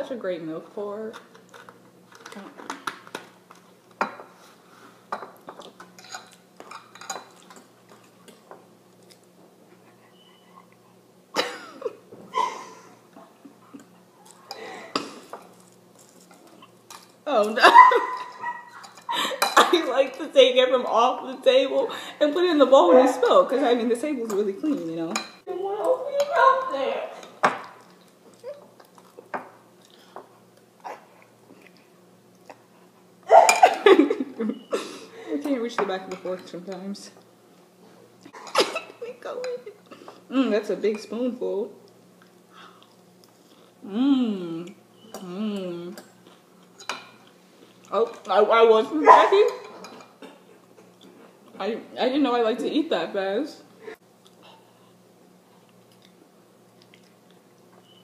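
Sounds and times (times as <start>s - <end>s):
person chewing cereal: 27.8s - 33.0s, 41.9s - 43.8s, 54.2s - 57.7s.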